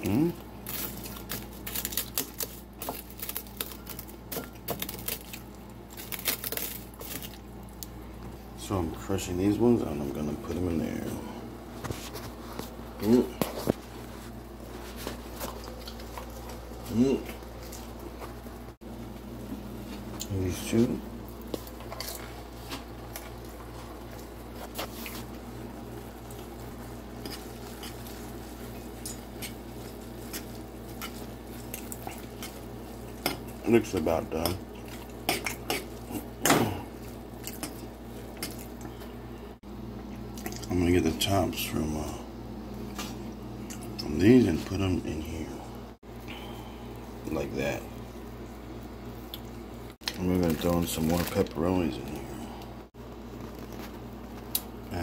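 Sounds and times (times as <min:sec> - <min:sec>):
cheese puffs crunching: 0:00.0 - 0:08.2, 0:19.8 - 0:39.2, 0:49.2 - 0:55.0
faint electrical hum: 0:00.0 - 0:55.0.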